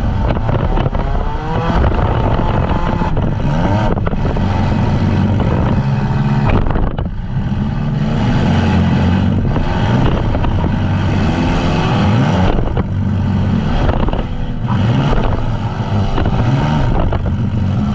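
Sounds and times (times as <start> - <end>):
van engines revving hard: 0.0 - 17.9.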